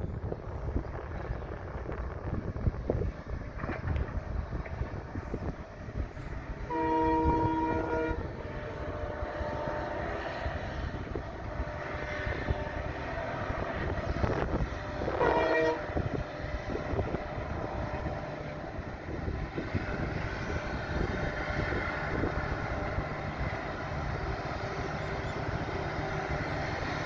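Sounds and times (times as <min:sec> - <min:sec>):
wind buffeting microphone: 0:00.0 - 0:27.0
distant train horn: 0:06.1 - 0:27.0.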